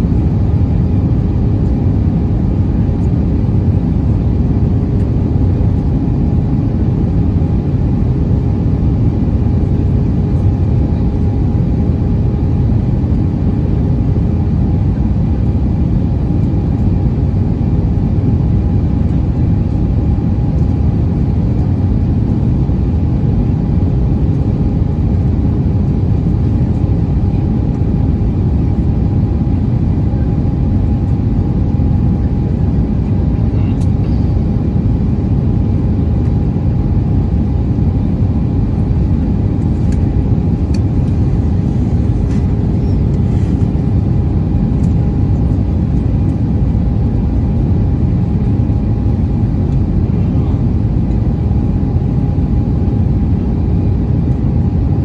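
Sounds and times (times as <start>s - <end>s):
faint steady hum: 0.0s - 54.8s
jet engines droning: 0.0s - 55.0s
rush of cabin air: 36.2s - 54.0s.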